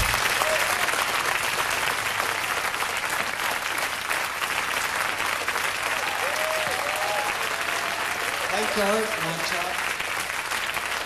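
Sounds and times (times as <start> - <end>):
audience cheering: 0.0 - 2.6, 5.8 - 9.9
audience applauding: 0.0 - 11.0.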